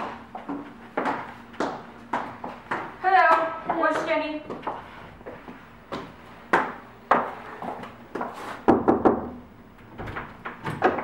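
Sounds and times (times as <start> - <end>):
knuckles knocking on wooden door: 8.7 - 9.4.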